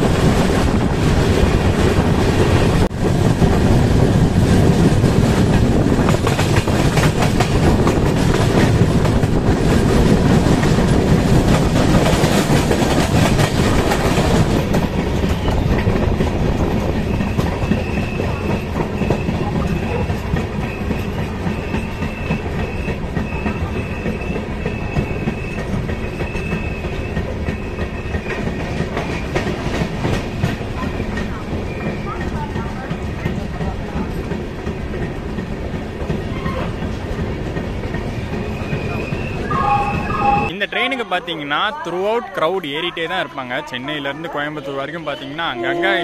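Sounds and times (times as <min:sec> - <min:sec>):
train clattering on rails: 0:00.0 - 0:46.0
high brake squeal: 0:17.1 - 0:28.6, 0:38.4 - 0:40.6.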